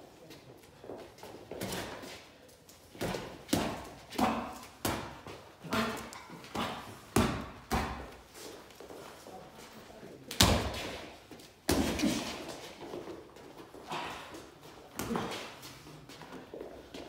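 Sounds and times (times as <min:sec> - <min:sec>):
boxing gloves thudding: 0:03.0 - 0:08.2.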